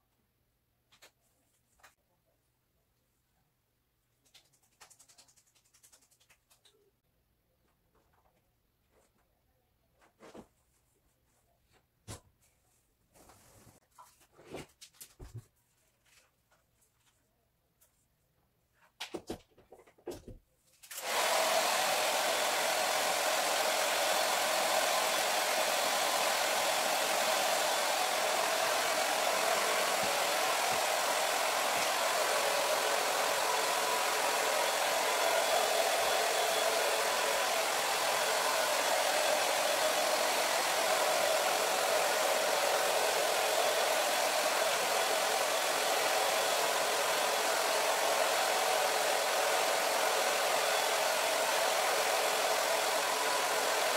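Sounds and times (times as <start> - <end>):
hair dryer whining and blowing: 20.9 - 53.9.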